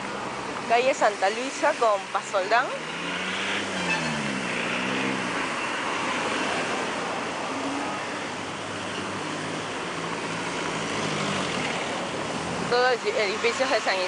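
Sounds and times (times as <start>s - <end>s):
cars driving past: 0.0s - 14.0s.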